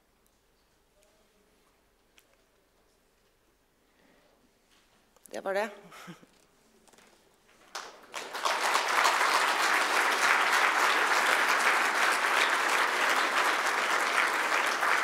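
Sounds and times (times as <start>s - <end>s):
audience applauding: 7.7s - 15.0s.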